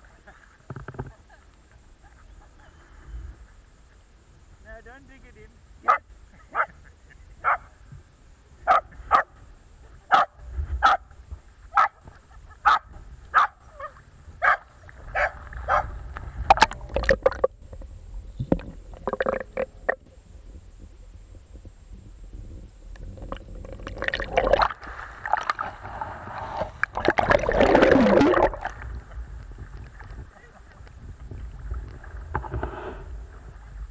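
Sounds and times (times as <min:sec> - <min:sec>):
small dog barking: 0:05.8 - 0:06.8, 0:07.4 - 0:07.7, 0:08.6 - 0:09.3, 0:10.1 - 0:11.1, 0:11.7 - 0:12.0, 0:12.6 - 0:15.9
water sloshing and gurgling: 0:14.0 - 0:20.2, 0:22.9 - 0:33.9.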